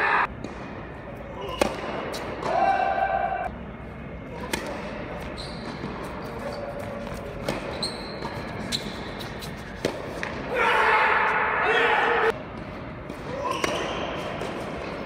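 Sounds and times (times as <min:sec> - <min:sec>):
high shoe squeaks: 0:05.2 - 0:09.8.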